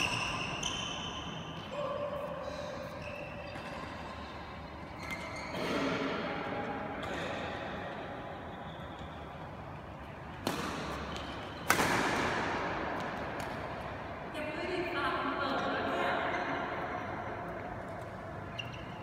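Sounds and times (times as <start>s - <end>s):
racket hitting shuttlecock: 4.9s - 7.9s, 10.1s - 14.2s.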